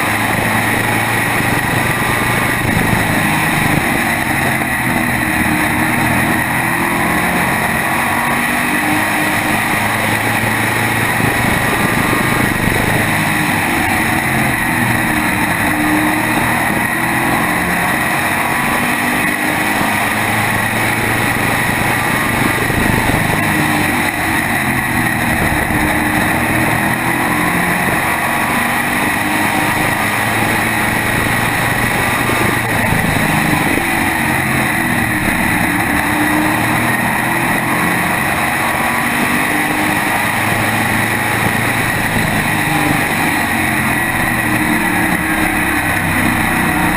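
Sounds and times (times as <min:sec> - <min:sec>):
race car engine running hard: 0:00.0 - 0:46.9
wind noise: 0:00.0 - 0:46.9.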